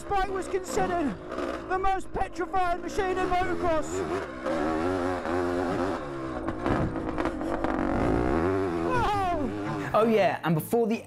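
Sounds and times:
motorcycle engine revving: 0.0 - 10.1.

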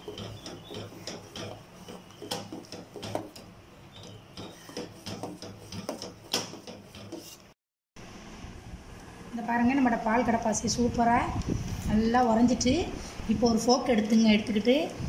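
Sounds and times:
metal spoon scraping steel bowl: 0.0 - 7.5.

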